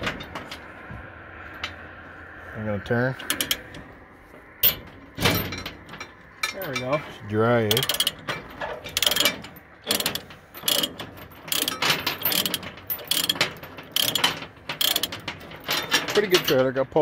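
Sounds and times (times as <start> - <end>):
ratchet pawl clicking: 3.2 - 3.8, 7.7 - 8.2, 9.0 - 15.3.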